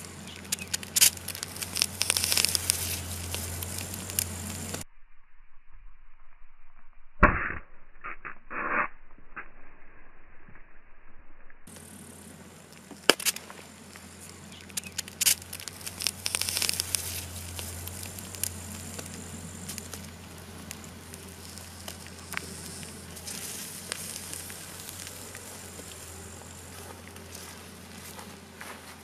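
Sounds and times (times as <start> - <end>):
hiss: 0.0 - 4.8, 11.7 - 28.2
molten lead crackling and sizzling: 0.0 - 4.8, 11.6 - 29.0
sharp pops: 0.0 - 4.8, 7.2 - 9.5, 11.7 - 28.2
steady low hum: 0.0 - 8.0, 9.0 - 29.0.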